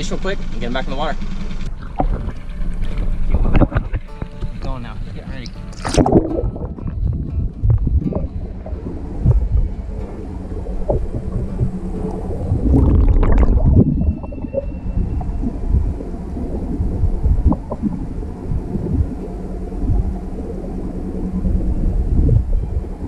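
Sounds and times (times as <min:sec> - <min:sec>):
muffled underwater water sloshing: 0:01.4 - 0:23.0
splash: 0:05.7 - 0:07.2.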